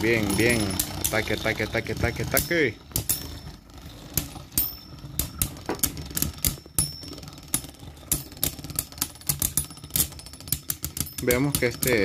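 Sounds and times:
spinning tops clashing clicks: 0:04.0 - 0:12.0.

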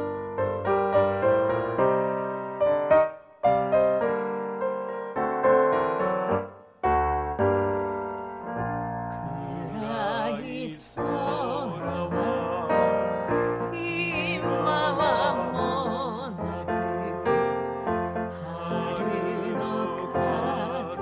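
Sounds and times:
piano accompaniment: 0:00.0 - 0:21.0
person singing with vibrato: 0:09.1 - 0:17.6, 0:18.2 - 0:21.0.

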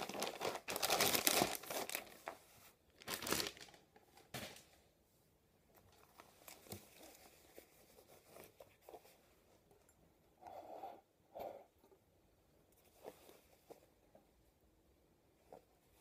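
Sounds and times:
fabric rustling by hand: 0:00.0 - 0:05.1, 0:05.9 - 0:09.8.

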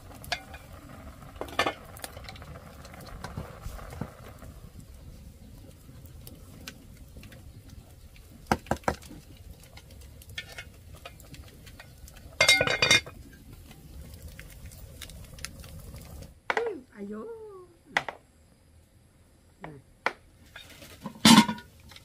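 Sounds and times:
dishes clattering: 0:12.4 - 0:13.1, 0:20.6 - 0:21.7.

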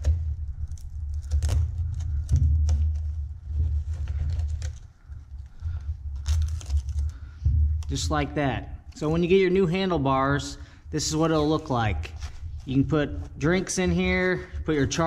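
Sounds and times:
velcro ripping: 0:00.0 - 0:03.1, 0:06.1 - 0:07.2
fabric rustling: 0:00.5 - 0:07.2, 0:11.0 - 0:15.0.

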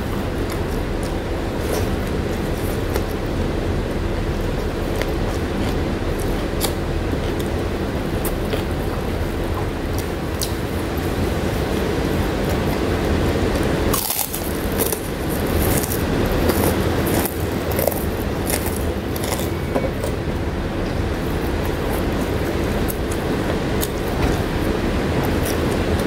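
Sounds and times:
low rumbling background noise: 0:00.0 - 0:26.0
cracker crunching: 0:09.9 - 0:19.6.

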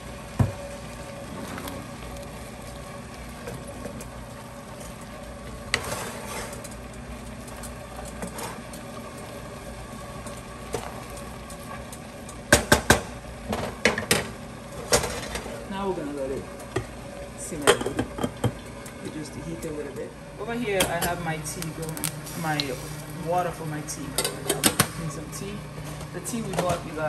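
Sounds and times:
pots hissing on stove: 0:00.0 - 0:27.0
pots and utensils clattering: 0:12.5 - 0:15.6, 0:24.1 - 0:25.0.

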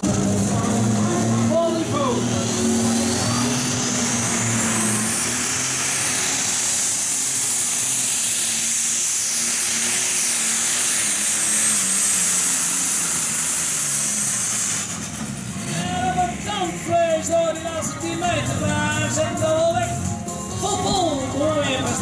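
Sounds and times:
tractor engine running flat out: 0:00.0 - 0:22.0
music: 0:16.1 - 0:22.0.

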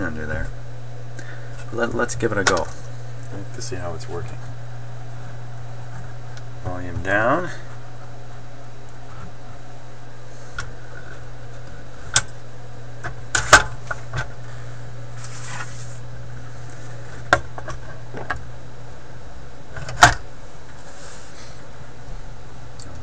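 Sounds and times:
tube amplifier hum: 0:00.0 - 0:23.0
record knocks and clicks: 0:01.6 - 0:09.6, 0:10.6 - 0:12.4, 0:13.0 - 0:14.4, 0:17.1 - 0:18.5, 0:19.7 - 0:20.3.

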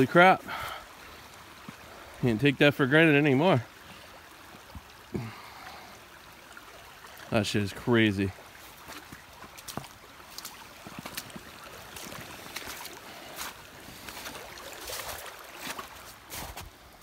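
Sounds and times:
stream rushing: 0:00.0 - 0:17.0
footsteps crunching in snow: 0:08.6 - 0:16.8.

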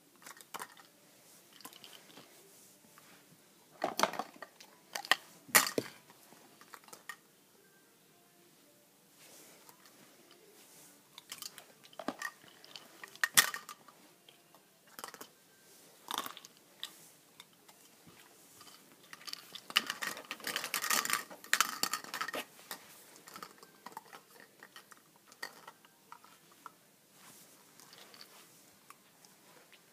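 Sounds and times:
plastic tubes clattering: 0:00.0 - 0:02.4, 0:03.7 - 0:07.2, 0:11.1 - 0:15.4, 0:16.0 - 0:26.8, 0:27.8 - 0:29.0.

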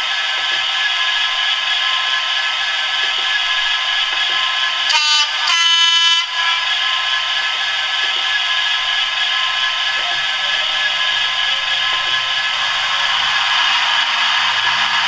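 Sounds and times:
model locomotive diesel idling: 0:00.0 - 0:15.0
two-tone train horn: 0:04.9 - 0:07.0.

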